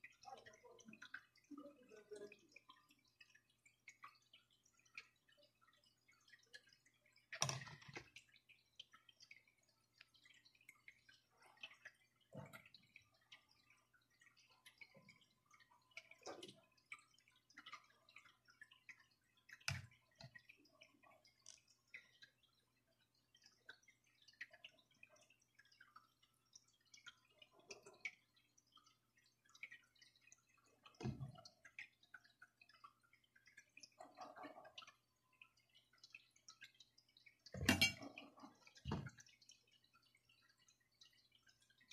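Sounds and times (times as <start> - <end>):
small clicks and taps of handling: 2.2 - 22.4.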